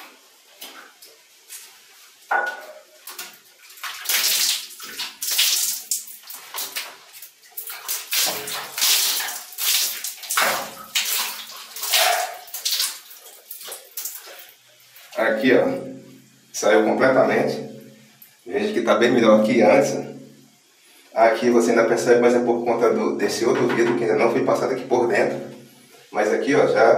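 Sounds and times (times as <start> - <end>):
water splashing on glass: 2.3 - 15.2.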